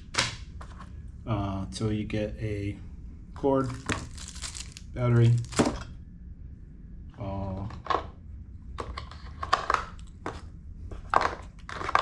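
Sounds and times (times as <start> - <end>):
plastic packaging crinkling: 3.6 - 5.8.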